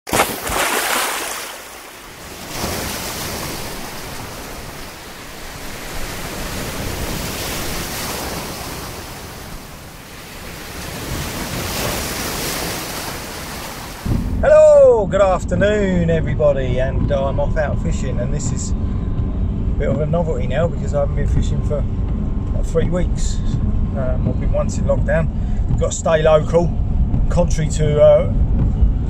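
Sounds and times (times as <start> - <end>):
waves breaking on shore: 0.1 - 14.6.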